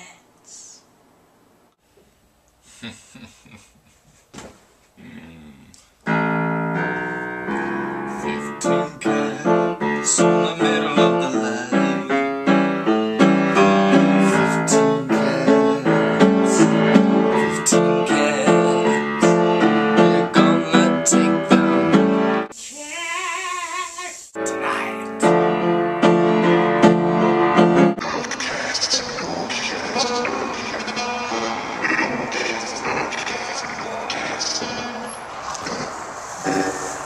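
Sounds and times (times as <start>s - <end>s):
keyboard music with quick notes: 6.1s - 22.5s.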